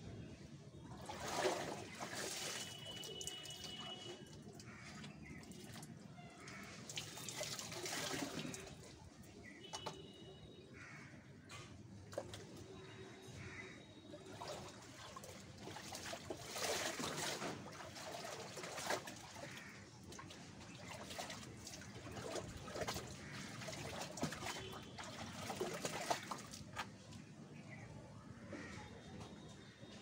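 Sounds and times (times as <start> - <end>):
water splashing in a plastic tub: 0.7 - 10.5, 11.2 - 27.8.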